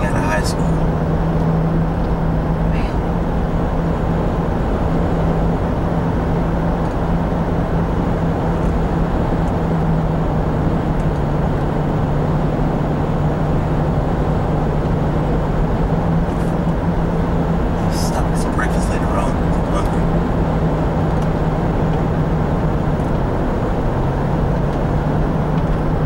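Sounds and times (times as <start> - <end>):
car engine hum: 0.0 - 26.0
road noise: 0.0 - 26.0.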